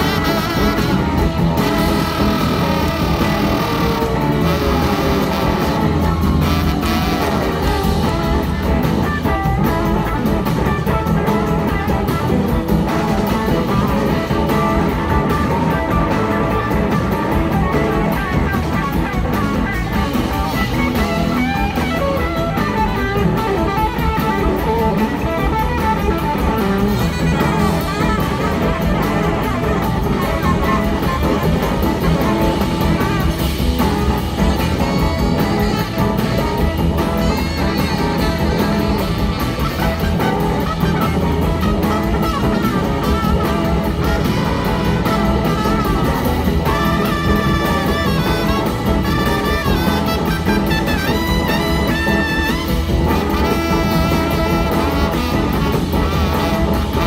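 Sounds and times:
electric guitars: 0.0s - 57.0s
live blues-rock band: 0.0s - 57.0s.

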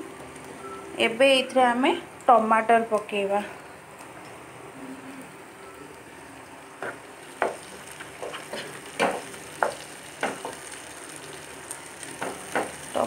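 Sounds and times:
vegetables sizzling in a frying pan: 0.0s - 13.0s
wooden spatula scraping a pan: 6.8s - 9.3s.

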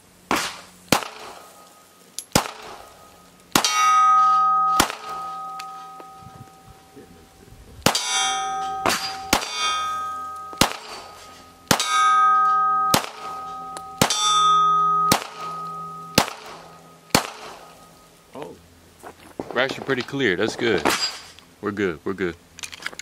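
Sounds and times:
pistol shots: 0.3s - 1.5s, 2.3s - 2.9s, 3.5s - 4.0s, 4.6s - 6.1s, 7.8s - 12.0s, 12.8s - 14.4s, 15.0s - 17.7s
steel plate targets ringing: 0.4s - 18.2s.

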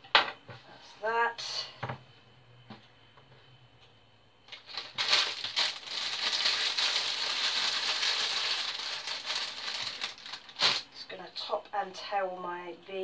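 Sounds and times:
plastic bag crinkling: 4.5s - 11.0s.

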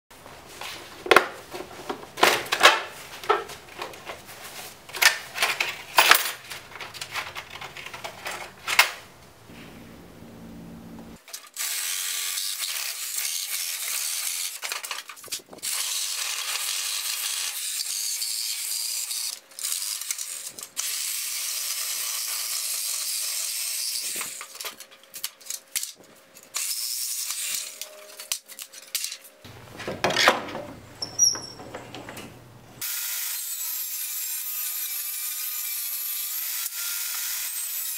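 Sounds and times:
power tool cutting wood: 11.3s - 14.6s, 15.6s - 24.5s, 32.8s - 37.9s.

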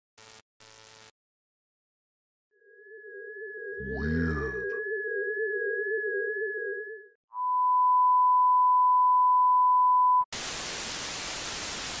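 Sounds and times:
tv static hiss: 10.4s - 12.0s.

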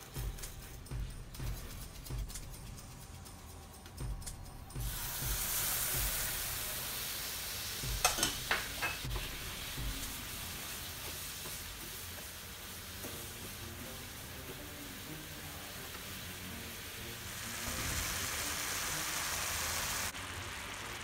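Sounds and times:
water sizzling in hot pan: 4.7s - 21.0s.

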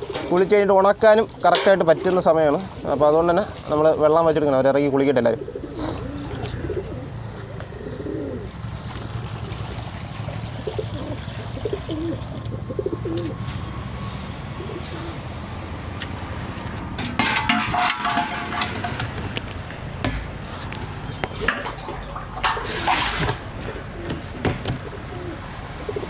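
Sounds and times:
pigeons cooing: 0.0s - 0.5s, 5.2s - 13.5s, 14.4s - 15.4s, 20.4s - 26.0s
knocking and ringing: 17.0s - 19.2s, 20.0s - 20.3s.

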